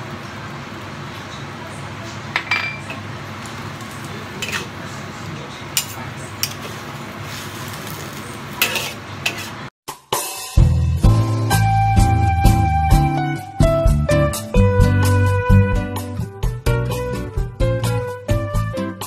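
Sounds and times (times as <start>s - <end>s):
spatula scraping and clinking on wok: 4.4s - 4.7s, 5.8s - 9.7s.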